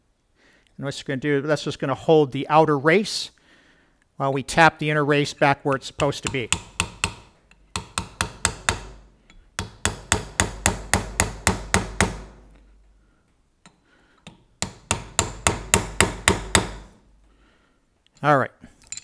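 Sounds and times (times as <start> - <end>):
hammer tapping metal punch: 5.7 - 12.3, 13.6 - 16.8.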